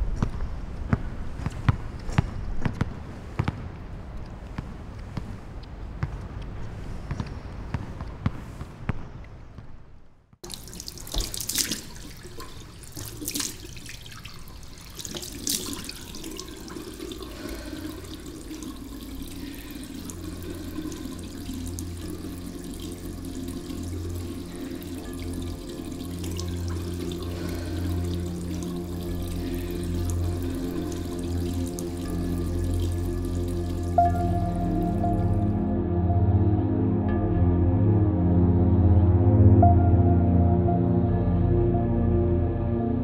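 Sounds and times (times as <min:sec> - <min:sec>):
basketball bouncing: 0:00.1 - 0:03.7, 0:07.1 - 0:09.9
sneakers squeaking on court: 0:06.0 - 0:09.9
tap running into washbasin: 0:10.4 - 0:27.0
low steady hum: 0:10.4 - 0:43.0.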